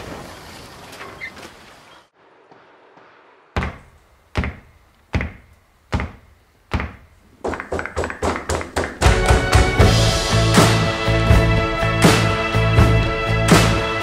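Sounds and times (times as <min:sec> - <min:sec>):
soft outdoor rush: 0:00.0 - 0:09.3
music with thudding beat: 0:08.2 - 0:10.8.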